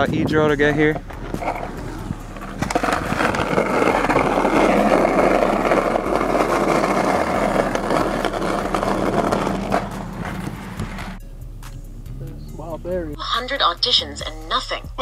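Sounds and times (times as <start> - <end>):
skateboard wheels rumbling on asphalt: 0.0 - 11.2.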